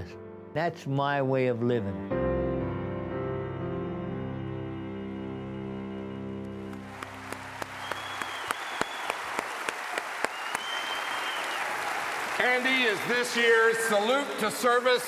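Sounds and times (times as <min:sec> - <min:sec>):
soft sustained music: 0:00.0 - 0:08.8
audience applause: 0:06.5 - 0:15.0
high whistles from crowd: 0:07.0 - 0:12.3.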